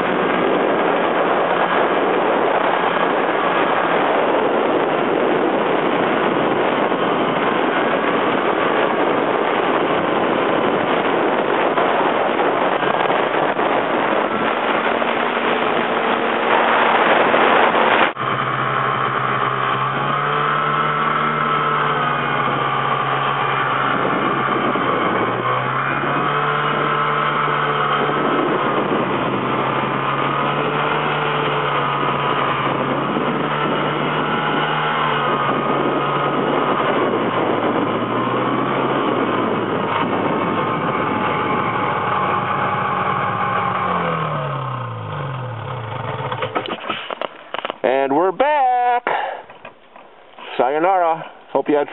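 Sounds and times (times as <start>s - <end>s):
dense rushing noise: 0.0s - 26.8s
snowmobile engine running: 0.0s - 49.8s.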